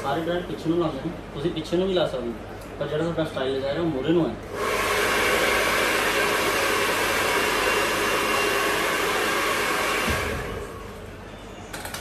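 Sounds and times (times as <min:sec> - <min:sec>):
hair dryer blowing: 0:00.0 - 0:00.4, 0:04.4 - 0:11.2.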